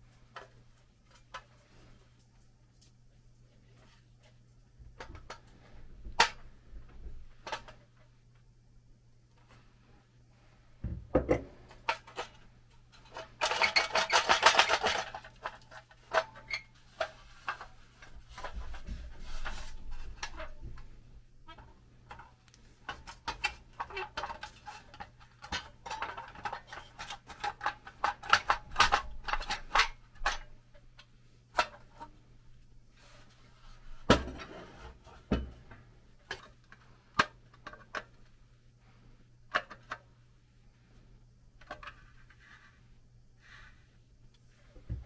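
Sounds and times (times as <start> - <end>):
sheet metal clicks and clatter: 13.0 - 18.8.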